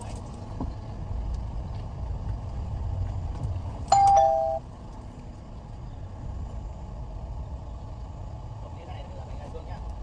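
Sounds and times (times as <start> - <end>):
car engine humming: 0.0 - 10.0
two-note electronic chime: 3.9 - 4.6.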